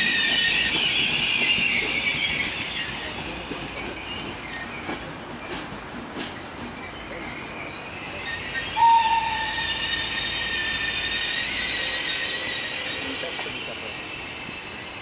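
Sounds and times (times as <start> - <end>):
train wheels squealing: 0.0 - 5.7, 6.6 - 15.0
whistle-like tone: 8.4 - 13.2.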